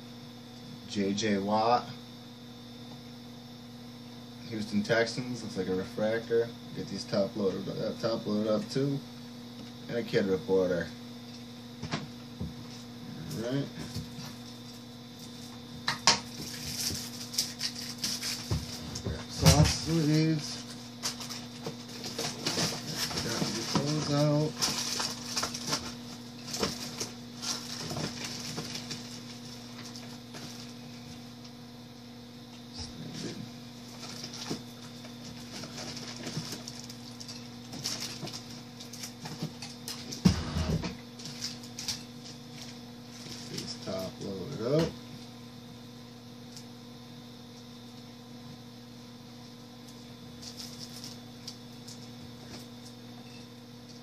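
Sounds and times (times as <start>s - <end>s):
low electrical hum: 0.0s - 54.0s
plastic sleeves rustling: 16.3s - 30.8s, 33.8s - 39.4s.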